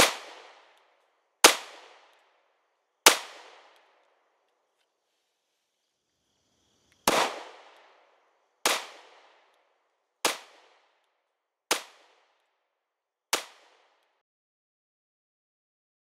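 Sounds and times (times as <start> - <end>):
gunshots echoing: 0.0 - 0.8, 1.4 - 2.2, 3.1 - 3.8, 7.1 - 8.0, 8.6 - 9.5, 10.2 - 10.9.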